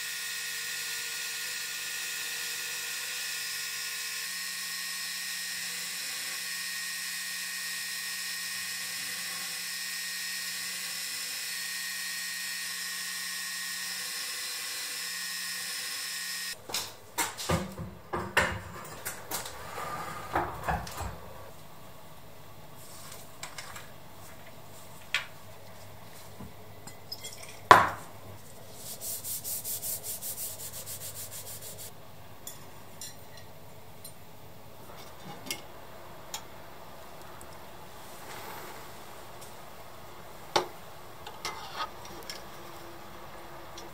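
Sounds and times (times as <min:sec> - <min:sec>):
belt grinder whining: 0:00.0 - 0:16.6
cloth rubbing a knife blade: 0:28.7 - 0:31.9.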